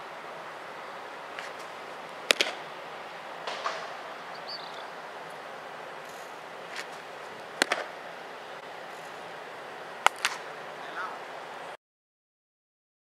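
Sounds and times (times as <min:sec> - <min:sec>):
steady outdoor hiss: 0:00.0 - 0:11.8
baseball popping into leather mitt: 0:02.3 - 0:02.6, 0:07.6 - 0:08.0, 0:10.0 - 0:10.4.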